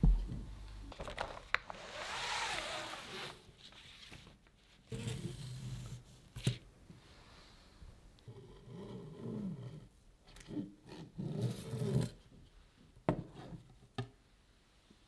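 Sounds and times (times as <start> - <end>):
heavy thump: 0.0 - 0.5.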